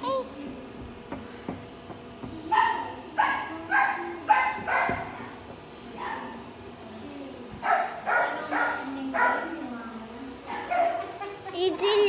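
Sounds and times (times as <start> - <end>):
dog barking: 2.5 - 5.2, 6.0 - 6.4, 7.6 - 9.6, 10.5 - 11.2.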